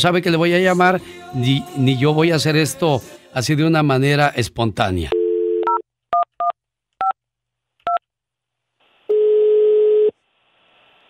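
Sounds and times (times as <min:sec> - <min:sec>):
dial tone: 0:05.2 - 0:05.8, 0:09.1 - 0:10.1.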